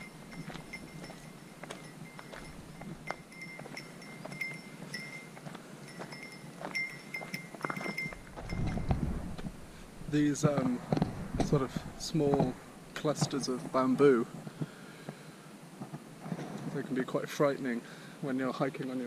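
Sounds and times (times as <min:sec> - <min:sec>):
small bell jingling: 0:00.0 - 0:09.1
footsteps on dirt trail: 0:00.0 - 0:16.9
low rumble: 0:08.2 - 0:13.0.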